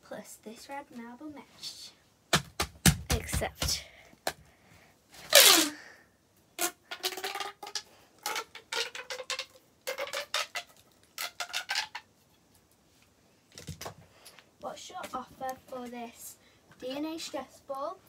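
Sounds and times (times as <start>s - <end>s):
plastic pop tube zipping: 5.2s - 5.8s, 6.6s - 12.1s.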